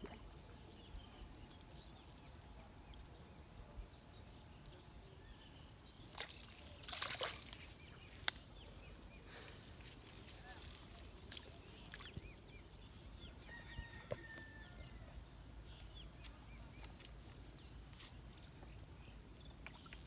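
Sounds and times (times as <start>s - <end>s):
water splashing: 0.0s - 3.3s, 5.8s - 13.6s.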